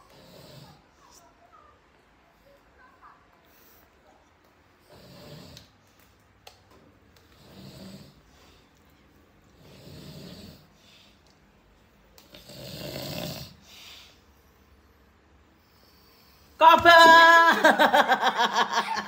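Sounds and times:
person snoring: 7.4s - 8.2s, 12.3s - 13.6s.

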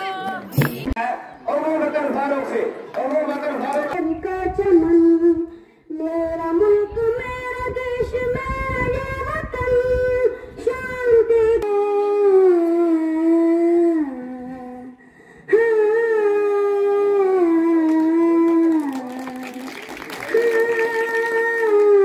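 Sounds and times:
boy singing into a microphone: 4.0s - 19.6s.

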